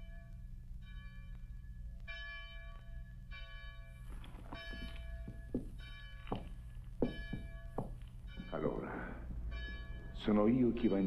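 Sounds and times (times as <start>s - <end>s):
church bell tolling: 0.0s - 11.0s
low steady hum: 0.0s - 11.0s
short knocks: 4.6s - 8.6s.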